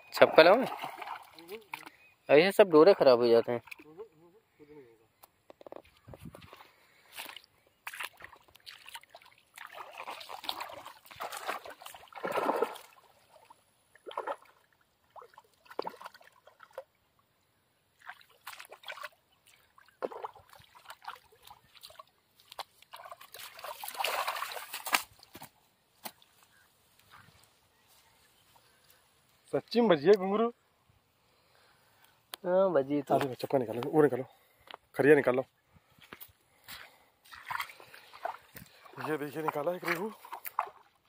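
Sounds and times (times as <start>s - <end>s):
water sloshing and splashing: 0.2s - 2.1s, 6.1s - 17.0s, 17.9s - 26.4s, 36.6s - 41.0s
fish thrashing and splashing: 0.6s - 2.0s, 7.2s - 14.6s, 18.0s - 25.4s, 37.3s - 41.0s.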